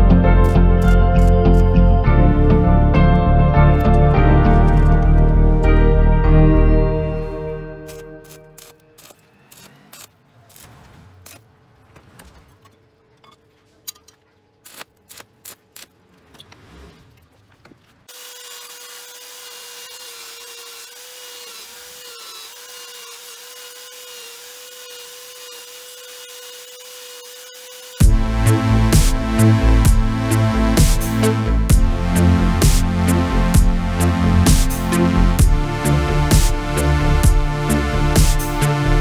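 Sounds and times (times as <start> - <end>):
belt sander grinding steel: 18.1 - 39.0.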